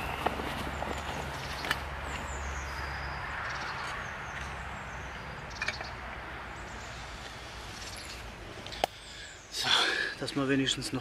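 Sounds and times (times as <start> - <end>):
footsteps on forest litter: 0.0 - 2.9
birds chirping: 0.0 - 11.0.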